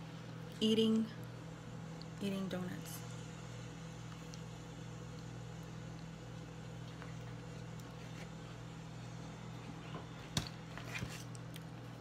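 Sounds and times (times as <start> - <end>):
steady low hum: 0.0 - 12.0
person chewing: 4.0 - 8.4.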